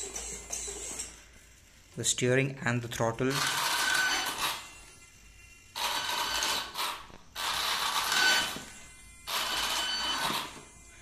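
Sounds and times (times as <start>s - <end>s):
electric motor and gears whirring: 0.0s - 11.0s.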